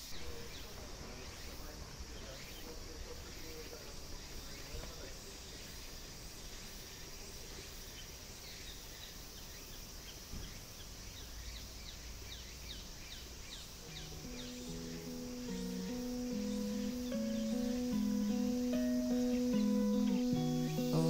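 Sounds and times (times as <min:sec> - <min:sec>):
insects droning: 0:00.0 - 0:21.0
music with low notes: 0:13.8 - 0:21.0.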